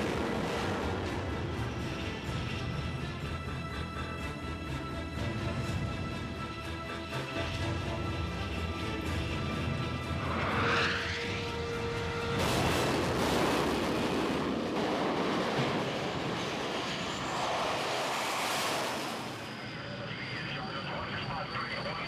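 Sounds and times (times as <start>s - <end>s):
music: 0.0s - 13.2s
jet engines at full power: 0.0s - 22.0s.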